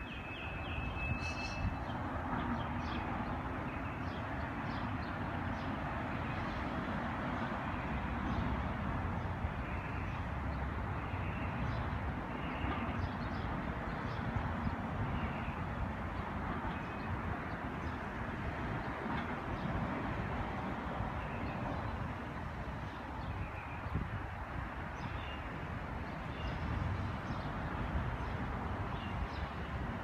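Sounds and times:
high bird chirps: 0.0s - 1.9s.

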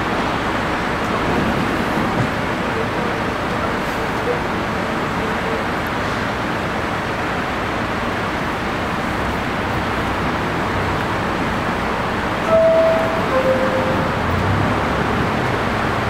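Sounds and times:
subway train standing noise: 0.0s - 16.0s
two-tone door chime: 12.4s - 14.2s.

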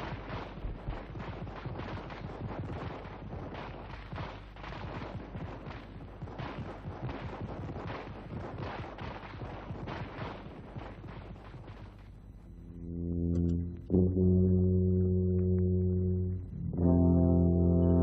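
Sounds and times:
rapid gunfire: 0.0s - 12.6s.

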